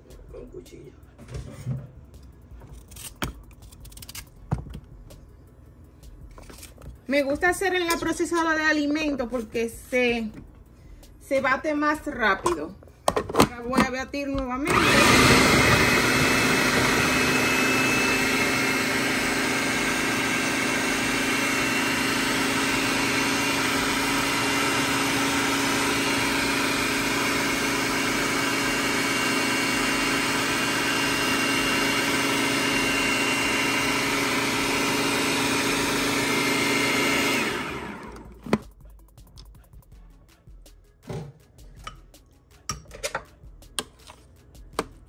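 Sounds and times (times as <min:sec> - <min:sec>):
food processor motor running: 0:14.6 - 0:38.6.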